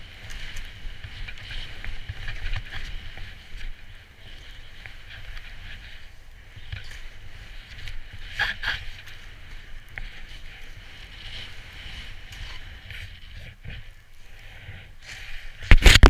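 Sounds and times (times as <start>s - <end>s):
skis hissing through powder snow: 0.0s - 15.9s
wind rumble on microphone: 0.0s - 16.0s.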